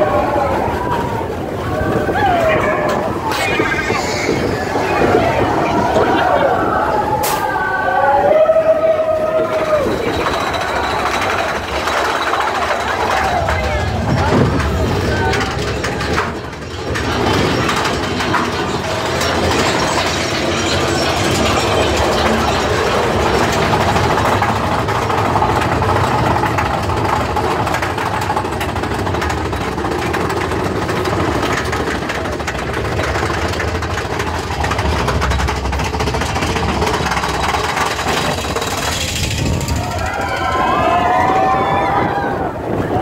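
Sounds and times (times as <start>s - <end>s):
roller coaster chain lift clatter: 0.0s - 43.0s.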